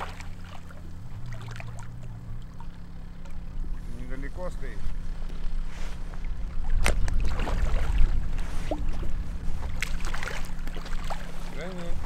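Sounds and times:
water splashing: 0:00.0 - 0:04.1, 0:06.0 - 0:12.0
wind rumbling on microphone: 0:03.3 - 0:12.0.

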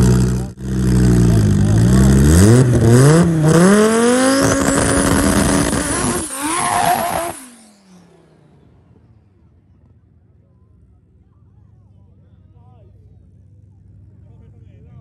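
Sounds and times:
drag-race cars launching: 0:00.0 - 0:09.9.

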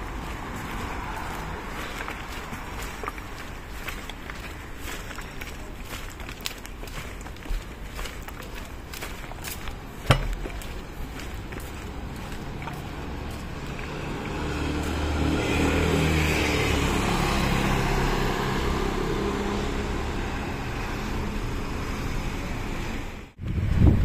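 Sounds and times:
sharp knock: 0:10.1 - 0:10.5.

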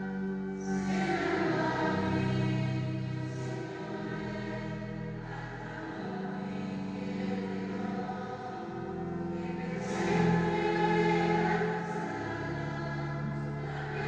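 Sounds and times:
slow church music chords: 0:00.0 - 0:14.0.

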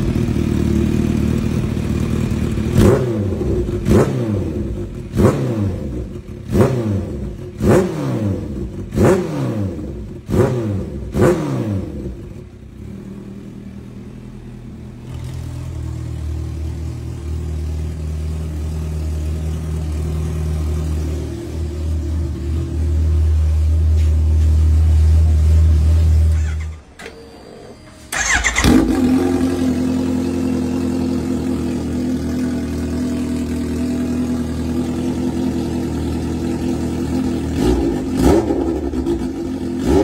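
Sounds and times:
motorcycle engine throttle blips: 0:00.0 - 0:40.0.

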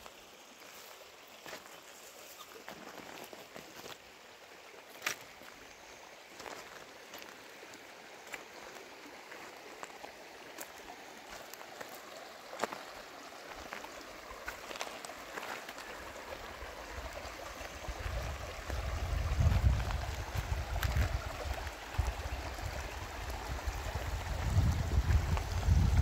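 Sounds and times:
river water over stones: 0:00.0 - 0:26.0
small water splashes: 0:06.3 - 0:25.4.

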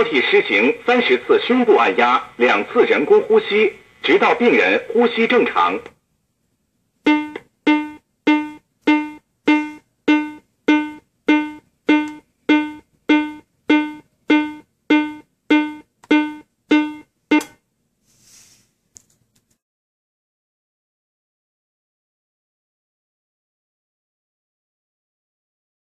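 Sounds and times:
metronome beeping: 0:07.1 - 0:17.6.

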